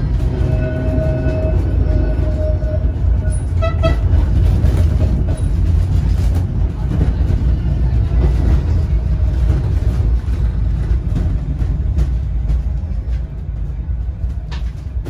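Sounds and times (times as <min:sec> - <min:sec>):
tram wheels and motors rumbling: 0:00.0 - 0:15.0.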